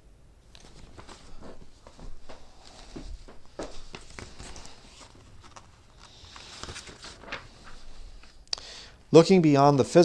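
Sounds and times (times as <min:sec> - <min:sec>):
paper rustling: 0:00.6 - 0:08.4.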